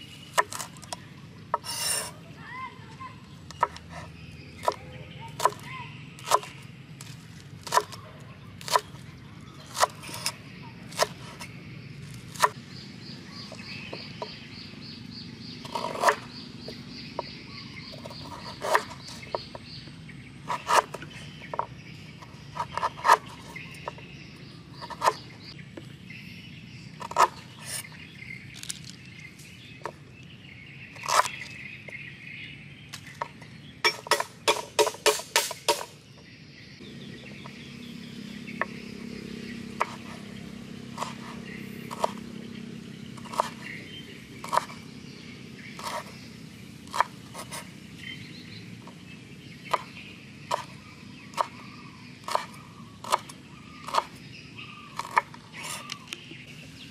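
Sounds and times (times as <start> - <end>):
cleaver chopping on wooden board: 3.5 - 4.0, 4.6 - 6.6, 7.6 - 8.0, 9.7 - 11.5, 15.6 - 19.6, 22.5 - 24.1, 24.8 - 25.3, 27.0 - 27.9, 31.0 - 32.0, 33.0 - 35.9, 39.7 - 42.5, 43.2 - 43.8, 44.4 - 44.8, 46.9 - 47.7, 49.6 - 54.2, 54.9 - 56.0.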